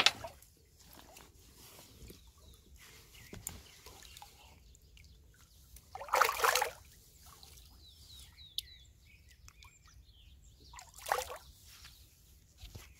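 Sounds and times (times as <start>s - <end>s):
small birds chirping: 0.5s - 12.9s
fish splashing in water: 5.9s - 6.9s.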